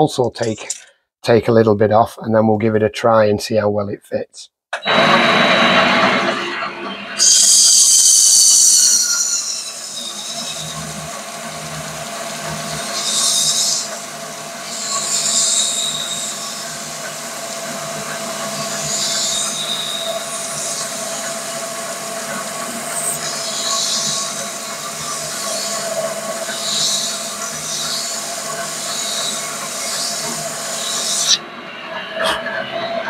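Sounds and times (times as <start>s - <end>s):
mini lathe whining: 4.8s - 31.4s
emery cloth hissing squeal: 7.2s - 10.8s.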